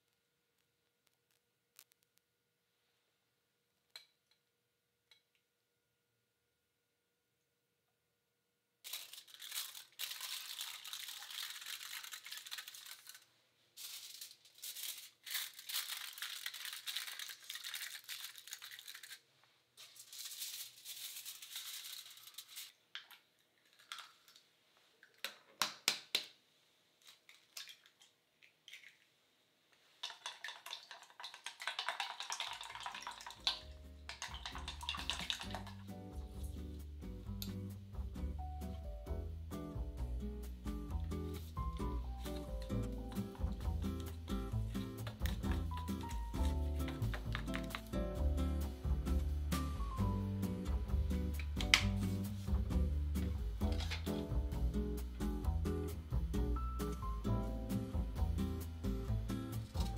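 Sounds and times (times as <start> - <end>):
aluminium foil crinkling: 8.8 - 22.8, 44.7 - 48.0
eggs beaten in metal bowl: 30.0 - 36.0, 42.7 - 48.0
light music: 33.4 - 59.9.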